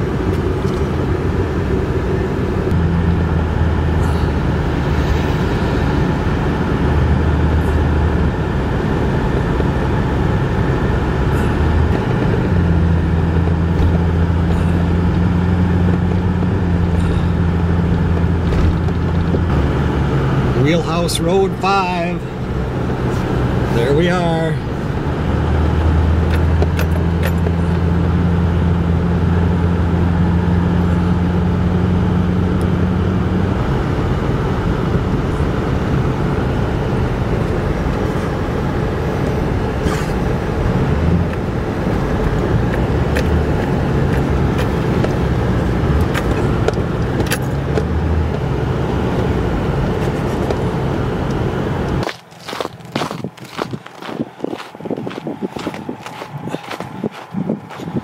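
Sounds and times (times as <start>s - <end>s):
low drone: 0.0s - 21.6s
road noise: 0.0s - 58.0s
vehicle engine hum: 0.0s - 58.0s.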